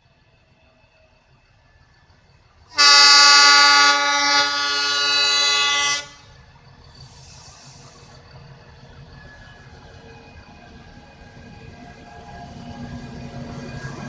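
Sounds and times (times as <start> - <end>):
faint approaching train: 0.0 - 14.0
train horn blast: 2.7 - 6.4.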